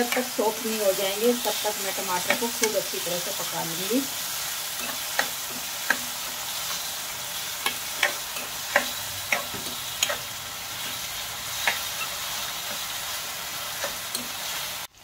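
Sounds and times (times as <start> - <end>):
vegetables sizzling in oil: 0.0 - 15.0
spatula scraping pan: 4.3 - 14.7.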